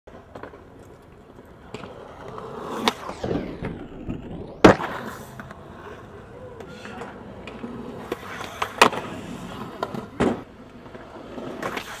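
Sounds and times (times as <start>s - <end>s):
skateboard slapping the ground: 0.1s - 12.0s
skateboard wheels rolling on concrete: 0.1s - 12.0s
skateboard clacking: 4.6s - 12.0s.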